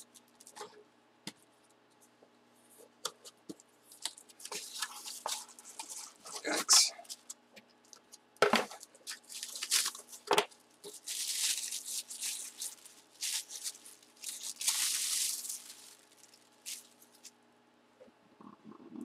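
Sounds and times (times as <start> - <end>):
tissue paper rustling: 4.4 - 7.2, 9.1 - 17.3.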